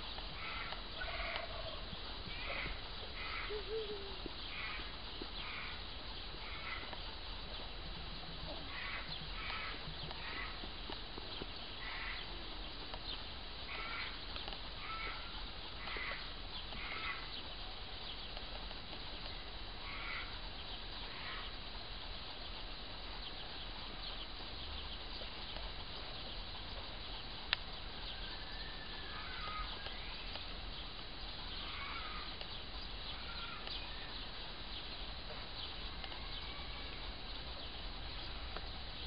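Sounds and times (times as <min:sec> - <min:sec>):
steady outdoor hiss: 0:00.0 - 0:39.0
crows cawing: 0:00.3 - 0:05.8, 0:06.4 - 0:06.9, 0:08.7 - 0:10.6, 0:11.8 - 0:12.4, 0:13.7 - 0:14.2, 0:14.8 - 0:17.4, 0:19.8 - 0:20.4, 0:21.1 - 0:21.5, 0:28.1 - 0:30.2, 0:31.5 - 0:32.4, 0:33.1 - 0:34.2, 0:36.0 - 0:37.1.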